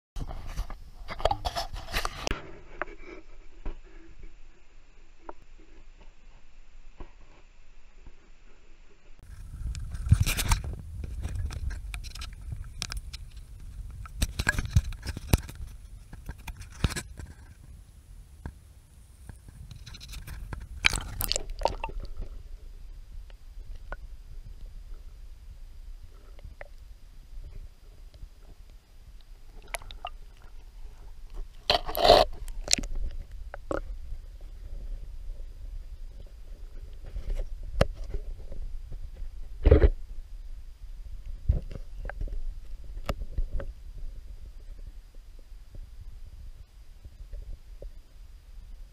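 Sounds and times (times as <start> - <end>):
loud crunching scrape: 0.2 - 4.0, 9.3 - 17.6, 31.4 - 32.8
rustling leaves and twigs: 0.4 - 46.7.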